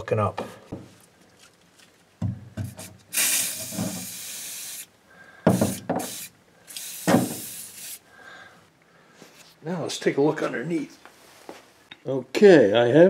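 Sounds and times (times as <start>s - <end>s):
aerosol can spraying hiss: 2.7s - 4.9s, 5.5s - 8.0s.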